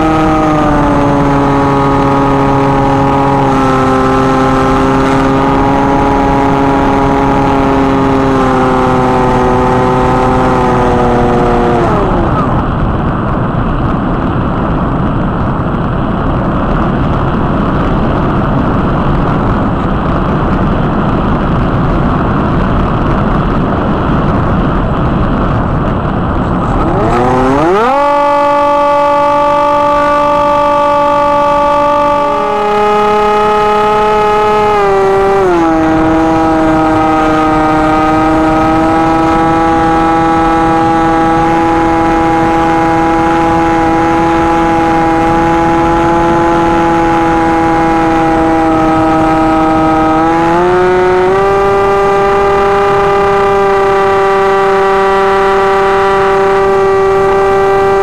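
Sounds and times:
wind rushing over airframe: 0.0 - 53.7
electric motor whining: 26.5 - 58.0.

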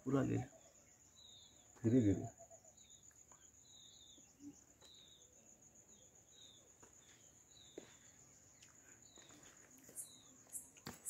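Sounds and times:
bird chirping: 0.0 - 11.0
insects droning: 0.0 - 11.0.

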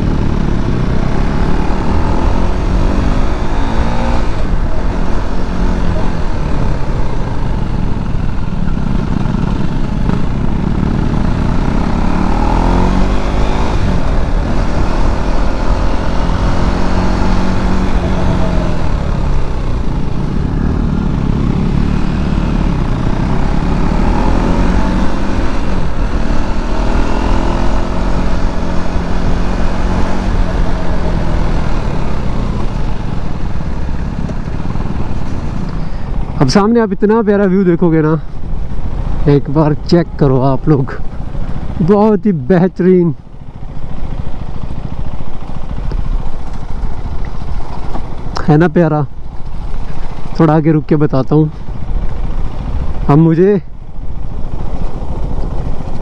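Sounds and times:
low rush of wind: 0.0 - 56.0
motorcycle engine revving: 0.0 - 56.0.

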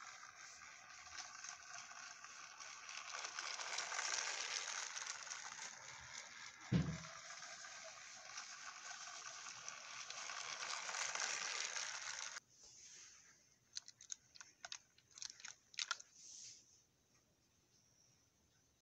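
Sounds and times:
toy train motor whirring: 0.0 - 12.4, 13.7 - 16.6
dull thump: 6.7 - 7.0
light clicks of toy handling: 13.7 - 16.6.

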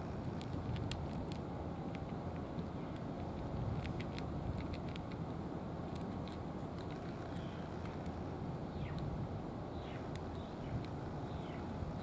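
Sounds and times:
low background rumble: 0.0 - 12.0
cat crunching dry kibble: 0.2 - 5.2.

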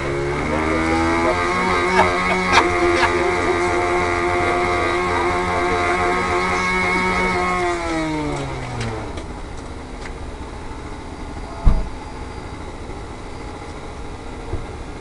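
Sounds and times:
model airplane motor: 0.0 - 9.3.

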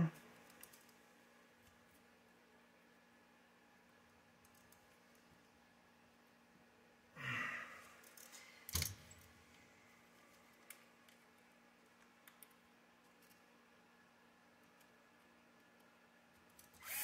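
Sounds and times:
faint clicks: 10.3 - 13.4.

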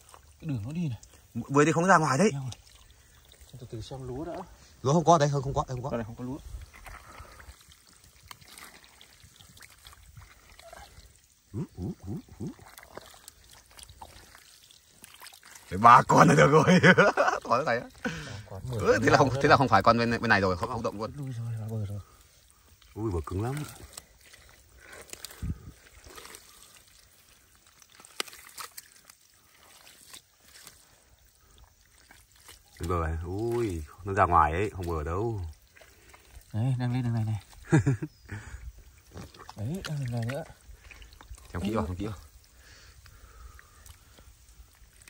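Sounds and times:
small splashes and clicks: 0.0 - 45.0
water trickling: 0.0 - 45.0
short gurgling sounds: 6.0 - 20.1.

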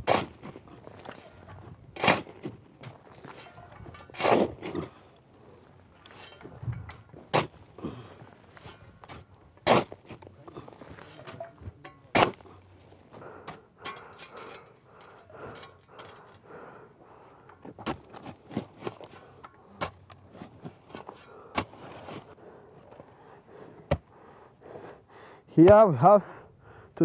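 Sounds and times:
shovel digging into soil: 0.0 - 1.3, 2.0 - 5.0, 7.2 - 7.6, 8.6 - 12.6.

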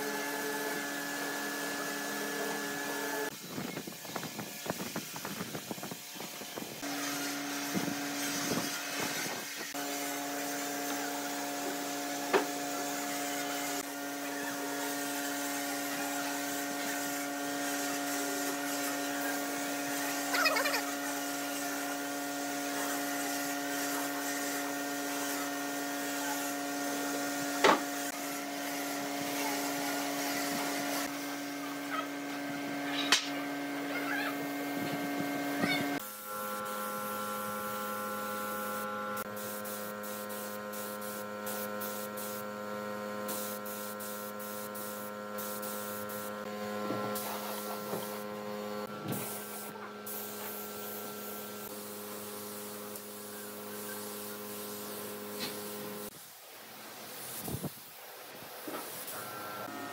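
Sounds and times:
air spray gun hissing: 0.0 - 31.8, 35.8 - 59.9
steady machine hum: 26.9 - 56.1.

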